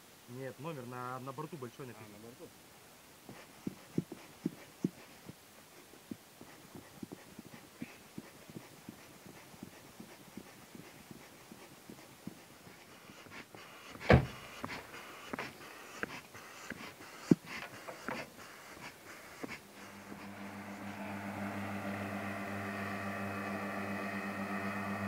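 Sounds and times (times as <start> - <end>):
air pump puffing: 3.3 - 5.2, 6.1 - 25.0
loud thump: 14.1 - 14.4.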